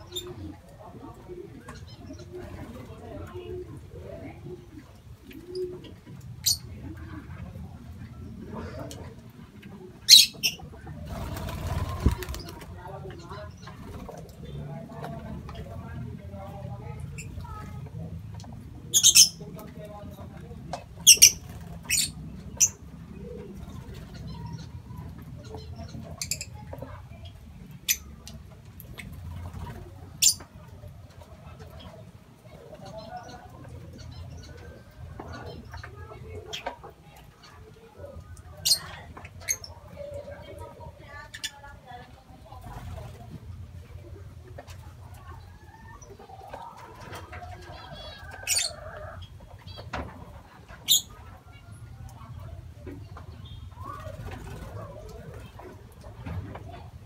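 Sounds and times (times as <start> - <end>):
low steady background hum: 0.0 - 57.0
lovebirds chirping: 21.0 - 28.2.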